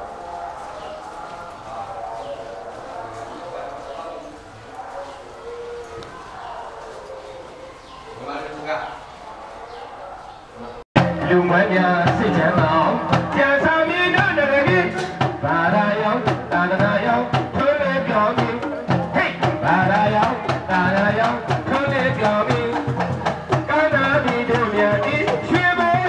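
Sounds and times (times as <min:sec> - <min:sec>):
sharp percussion strikes: 0:11.0 - 0:17.7
barrel drum strokes: 0:11.0 - 0:26.0.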